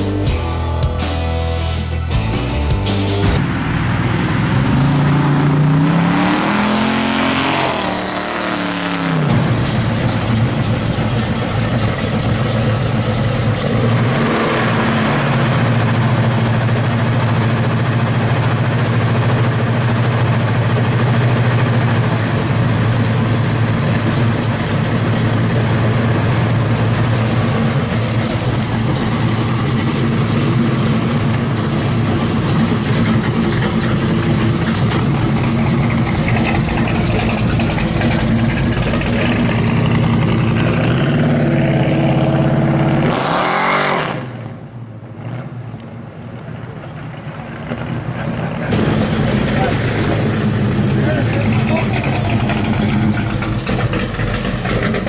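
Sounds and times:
engine rev: 2.9 - 46.0, 46.6 - 55.0
car engine idling: 8.5 - 43.3, 44.6 - 55.0.

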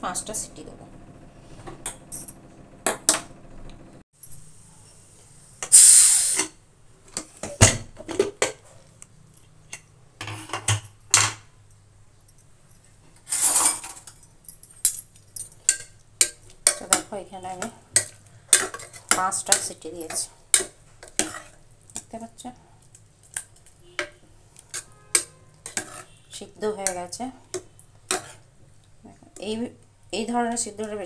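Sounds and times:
steam hissing burst: 5.7 - 6.5
metal spoon scraping pot: 15.6 - 21.6, 23.3 - 28.5.

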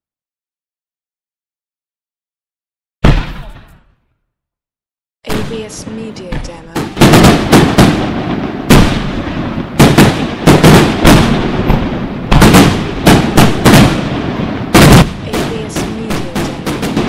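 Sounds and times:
firework shells bursting: 5.3 - 17.0.

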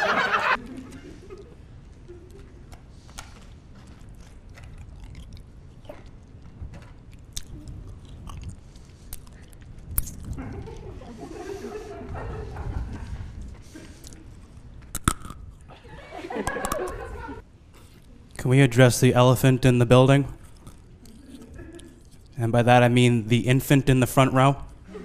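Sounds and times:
person crunching something hard: 3.9 - 6.1, 7.1 - 10.4, 14.9 - 15.6.

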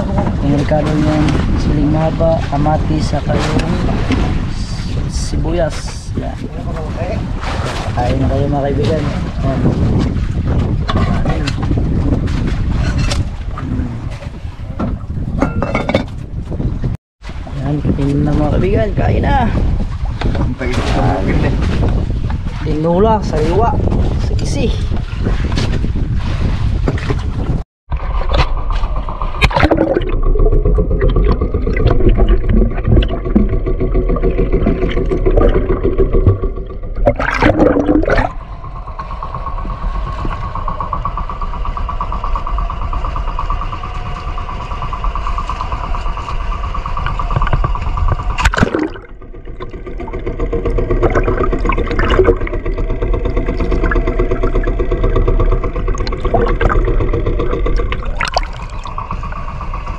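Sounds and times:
boat engine running: 0.0 - 59.9.

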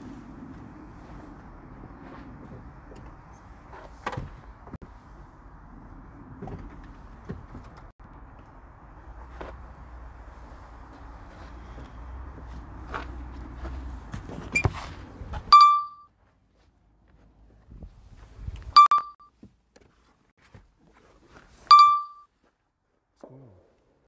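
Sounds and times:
electronic alert beeps: 15.5 - 16.1, 18.8 - 19.3, 21.7 - 22.2.

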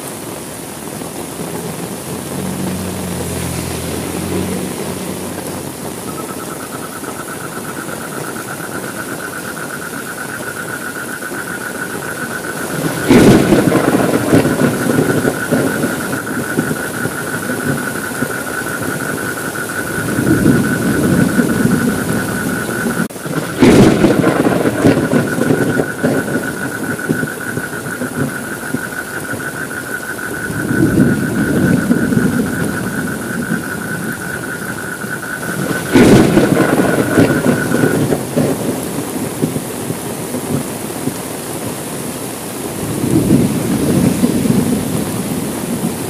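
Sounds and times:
steady rain: 0.0 - 46.0
thunderclap with rumbling: 11.6 - 41.8, 42.7 - 46.0.

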